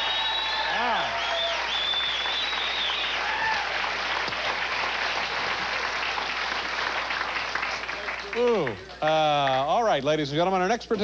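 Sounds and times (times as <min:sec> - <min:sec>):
studio audience applauding: 0:00.0 - 0:09.8.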